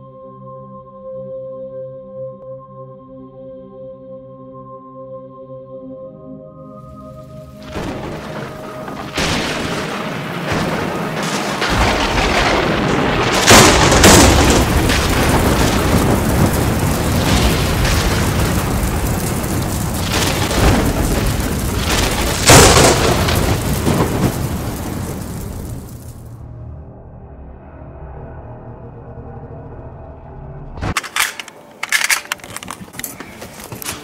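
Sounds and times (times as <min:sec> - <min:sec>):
heavy booms: 0:07.6 - 0:26.4
dense rumble: 0:07.6 - 0:26.7.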